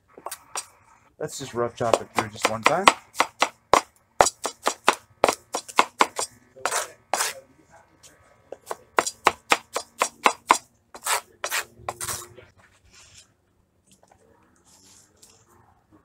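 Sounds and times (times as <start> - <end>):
knife chopping on plastic board: 1.8 - 7.3, 8.6 - 11.6.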